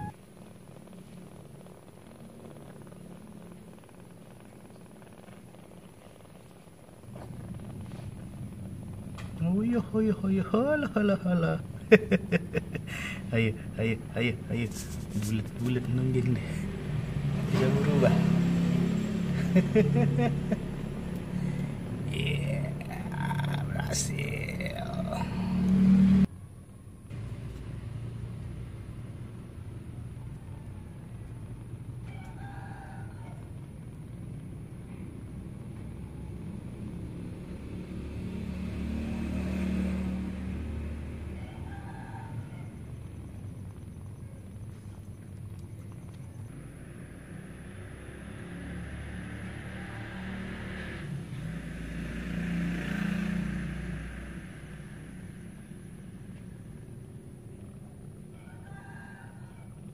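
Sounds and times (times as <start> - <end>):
steady low rumble: 0.0 - 18.2, 18.8 - 32.4, 33.0 - 38.0, 41.6 - 49.4, 54.0 - 58.4
loud low hum: 7.0 - 26.3
motor vehicle passing: 7.0 - 26.3, 27.1 - 59.9
distant rooster crowing: 30.2 - 33.8, 40.6 - 43.2, 46.5 - 51.2, 58.2 - 59.9.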